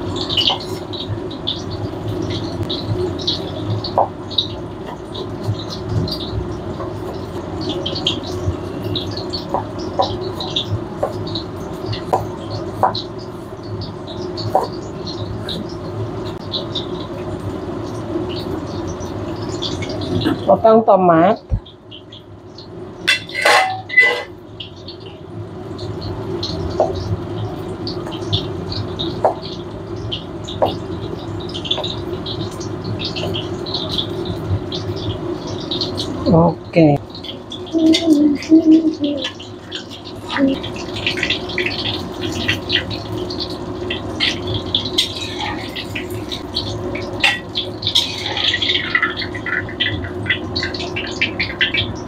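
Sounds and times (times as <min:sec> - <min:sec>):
tofu sizzling in hot oil: 0:39.5 - 0:52.0.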